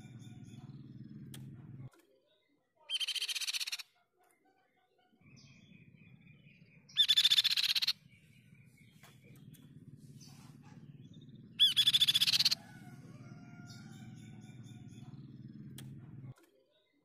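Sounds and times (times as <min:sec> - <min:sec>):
bird rattling trills: 0:02.9 - 0:03.8, 0:06.3 - 0:16.3.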